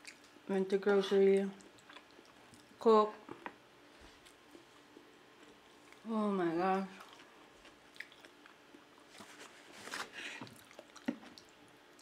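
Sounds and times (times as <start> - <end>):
person chewing food: 0.0 - 0.4, 1.6 - 6.1, 6.9 - 9.3, 10.4 - 12.0.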